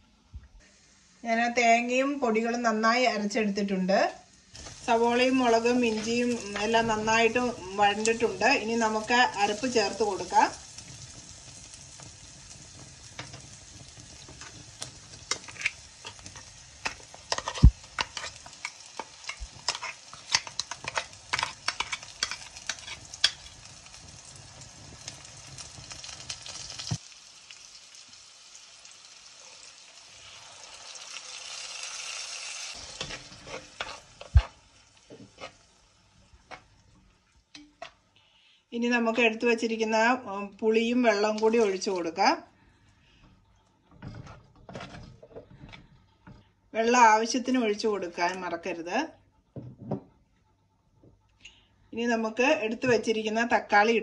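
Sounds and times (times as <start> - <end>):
vegetables sizzling in oil: 0.6 - 42.4
spatula stirring and scraping: 4.5 - 11.2, 13.1 - 23.8, 32.7 - 38.1, 43.6 - 46.5.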